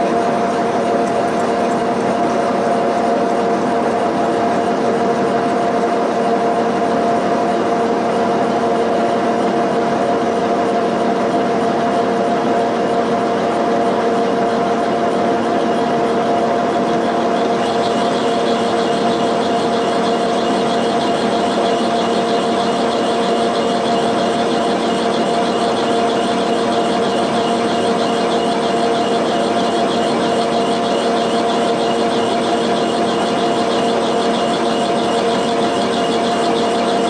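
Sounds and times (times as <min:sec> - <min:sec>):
machine spindle whine: 0:00.0 - 0:37.0
cast iron being cut: 0:14.6 - 0:37.0.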